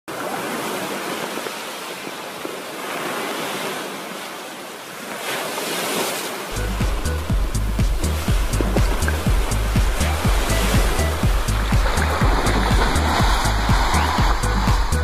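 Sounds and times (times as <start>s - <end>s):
rushing water: 0.1s - 15.0s
music with deep bass beat: 6.6s - 15.0s.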